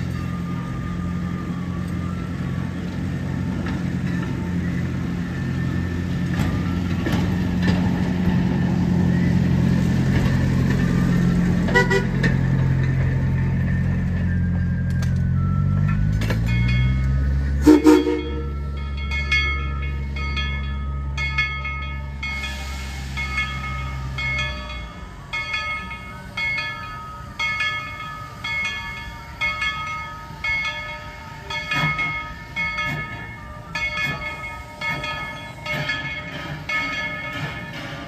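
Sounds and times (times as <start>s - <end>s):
locomotive bell ringing: 0.0s - 2.3s, 10.3s - 38.0s
steam whistle toot: 17.6s - 18.5s.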